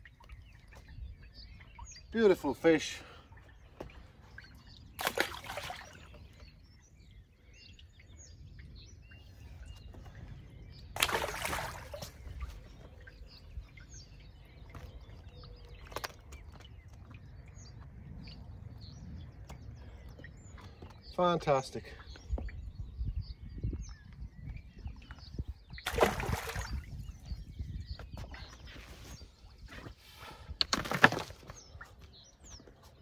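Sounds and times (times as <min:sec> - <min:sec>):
faint birdsong: 0:00.0 - 0:33.0
fish splashing into water: 0:05.0 - 0:06.0, 0:11.0 - 0:12.1, 0:25.8 - 0:26.9
wind rumble: 0:07.9 - 0:21.0, 0:22.2 - 0:29.8.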